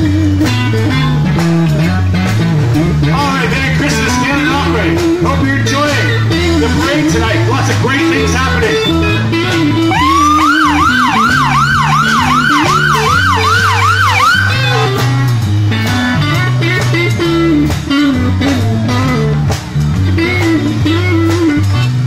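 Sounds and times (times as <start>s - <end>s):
live band music: 0.0s - 22.0s
siren wailing in fast yelp: 9.9s - 15.1s.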